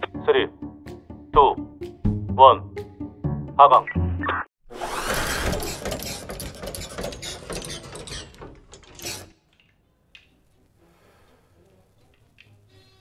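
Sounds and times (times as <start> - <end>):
metallic rattling and clicking: 5.4 - 10.3.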